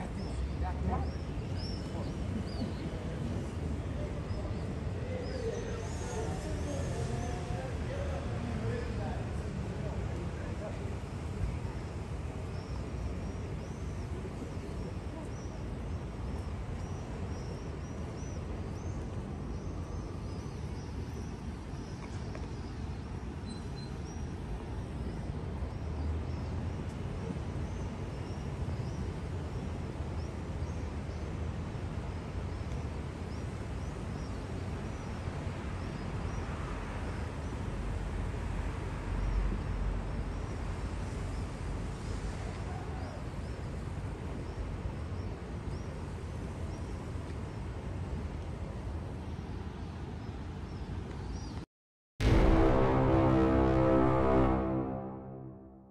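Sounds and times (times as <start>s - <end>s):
low outdoor rumble: 52.2s - 55.9s.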